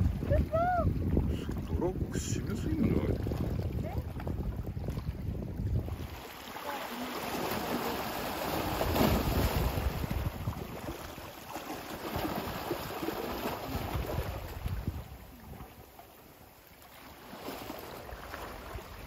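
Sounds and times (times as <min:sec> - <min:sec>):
wind on microphone: 0:00.0 - 0:11.3, 0:12.1 - 0:15.9
waves splashing against rocks: 0:00.0 - 0:19.0.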